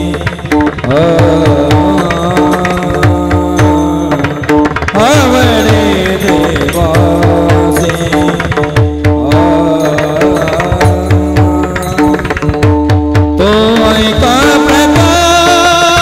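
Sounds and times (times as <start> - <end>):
hand drum beat: 0.0 - 16.0
sung melody: 0.0 - 16.0
small hand cymbals: 2.0 - 13.0.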